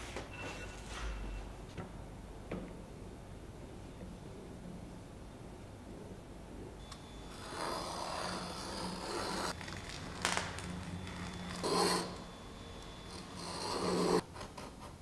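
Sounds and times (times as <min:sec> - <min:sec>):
knife scraping wood veneer: 0:13.4 - 0:14.2.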